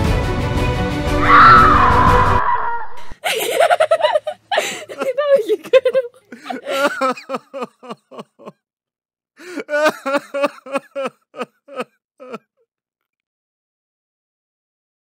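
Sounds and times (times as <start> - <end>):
woman laughing: 2.7 - 8.6, 9.5 - 12.4.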